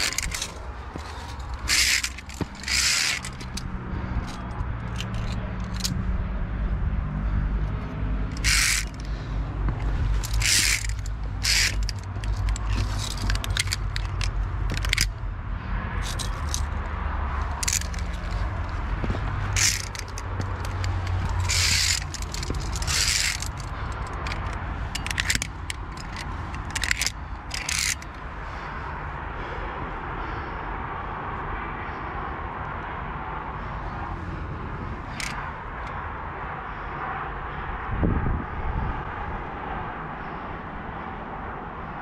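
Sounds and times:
carabiners clicking on steel cable: 0:00.0 - 0:06.3, 0:07.3 - 0:15.2, 0:15.9 - 0:28.8, 0:35.0 - 0:36.0.

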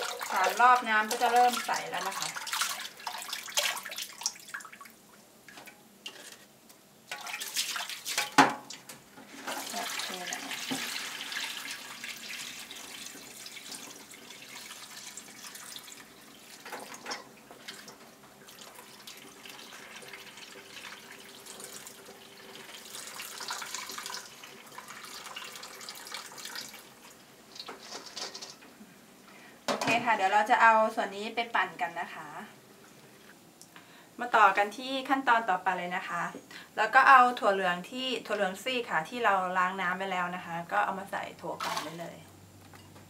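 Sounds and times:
water running and splashing: 0:00.0 - 0:05.0, 0:07.1 - 0:08.4, 0:09.3 - 0:28.2.

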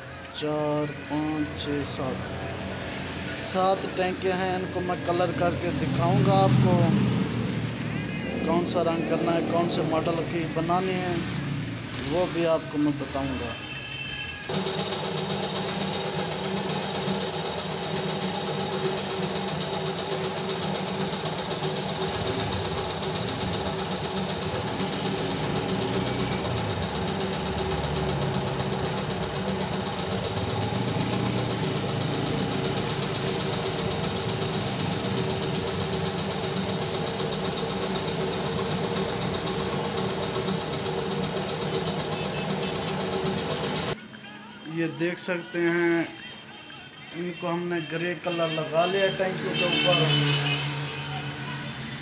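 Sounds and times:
air compressor running: 0:01.0 - 0:13.5, 0:14.5 - 0:44.0, 0:48.8 - 0:51.0
spray gun hissing: 0:14.5 - 0:44.0.

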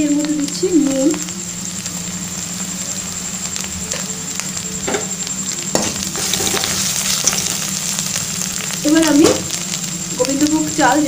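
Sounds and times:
paste sizzling in oil: 0:00.0 - 0:11.0.

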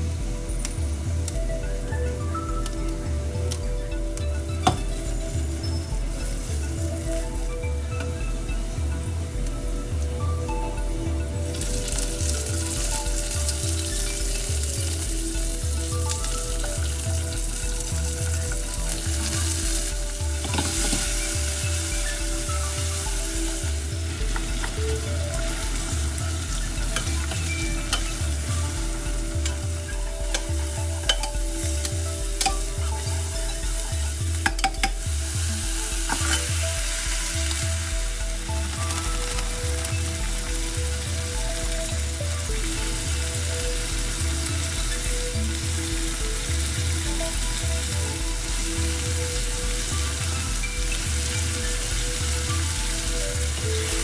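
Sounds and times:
steady low beat: 0:00.0 - 0:54.0
food sizzling in a pan: 0:11.4 - 0:54.0.

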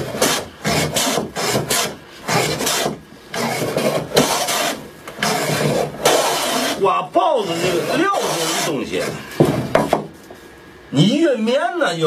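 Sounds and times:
hand plane shaving wood: 0:00.0 - 0:06.8, 0:07.4 - 0:09.2.

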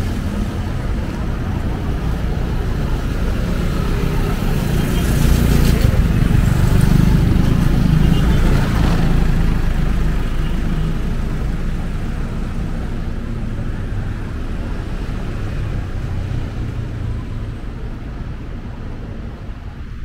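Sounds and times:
street traffic: 0:00.0 - 0:20.0.

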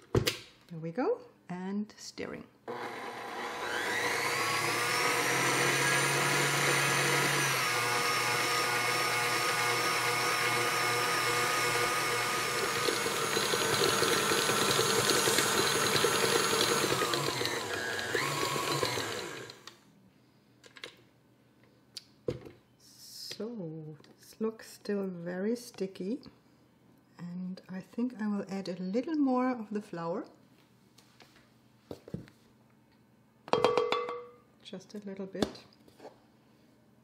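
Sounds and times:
stand mixer motor whining: 0:02.7 - 0:19.7.

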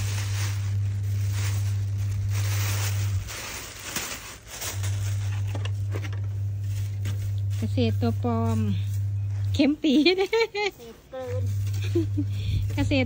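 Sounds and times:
plastic bag crinkling: 0:00.0 - 0:10.4
steady low hum: 0:00.0 - 0:13.0.

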